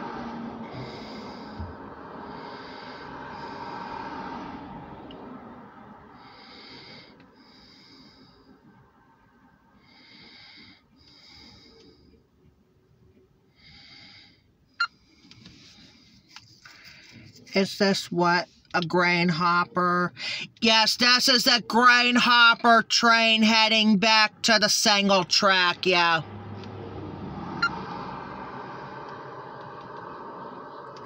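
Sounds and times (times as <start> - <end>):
breathing through the nose: 6.2 - 8.8, 9.8 - 12.2, 13.5 - 17.4.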